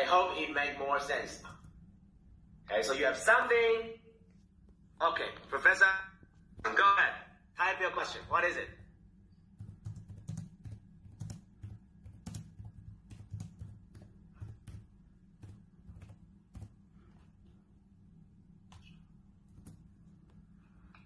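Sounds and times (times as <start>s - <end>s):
low steady hum: 0.0s - 21.0s
laptop keyboard typing: 8.2s - 17.2s, 18.6s - 20.4s.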